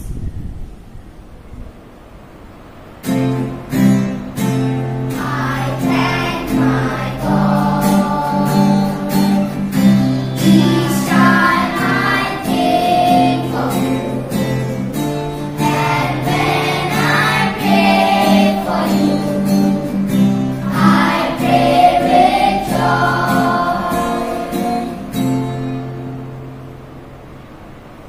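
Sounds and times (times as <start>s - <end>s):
children singing in unison: 5.1s - 25.7s.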